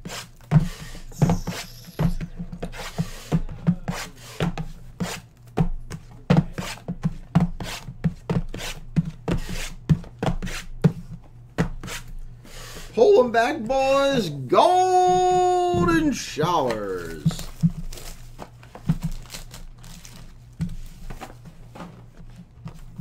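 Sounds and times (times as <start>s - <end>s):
plastic wrap rubbing: 17.3s - 21.2s.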